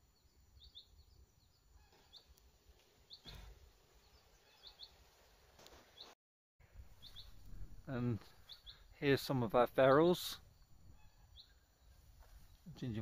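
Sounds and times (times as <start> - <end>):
faint bird chirps: 3.1 - 5.0, 6.9 - 9.0, 10.4 - 13.0.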